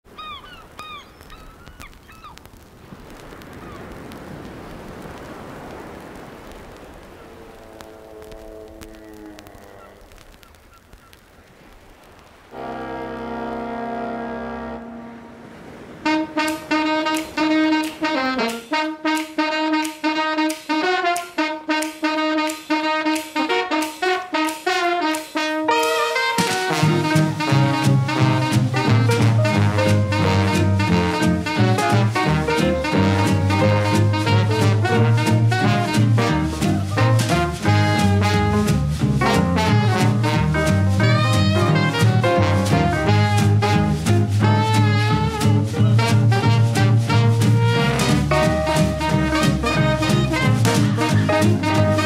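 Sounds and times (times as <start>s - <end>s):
birds calling: 0.1s - 2.4s
swing jazz band: 16.0s - 52.0s
steady rushing noise: 25.9s - 52.0s.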